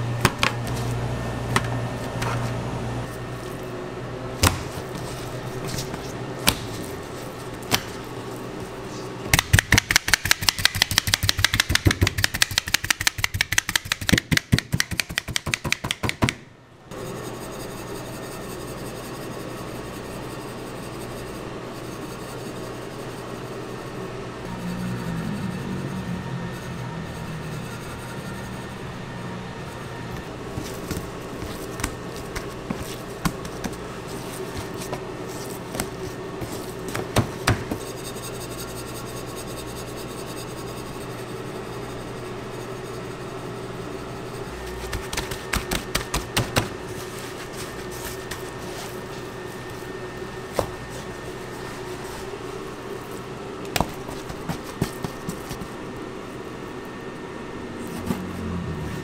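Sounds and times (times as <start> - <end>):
kitchen equipment humming: 0.0 - 59.0
clicks and knocks on work surface: 9.3 - 16.4.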